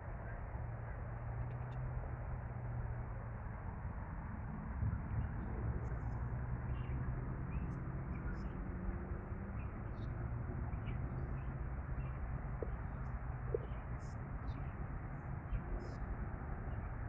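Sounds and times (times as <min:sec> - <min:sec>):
city traffic rumble: 0:00.0 - 0:17.0
small birds chirping: 0:09.5 - 0:17.0.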